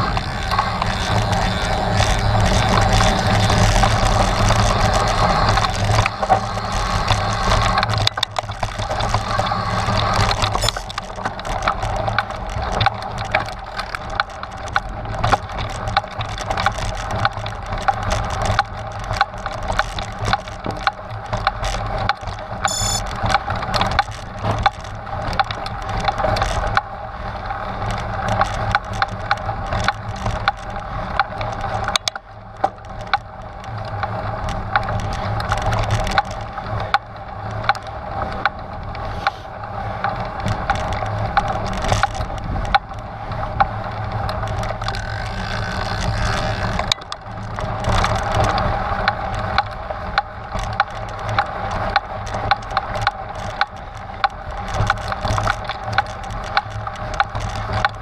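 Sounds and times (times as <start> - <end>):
bike clattering and rattling: 0.0 - 58.0.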